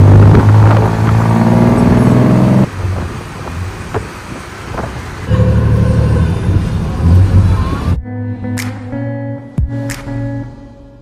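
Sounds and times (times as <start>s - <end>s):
auto rickshaw engine revving: 0.0s - 8.0s
traffic hum: 0.0s - 9.0s.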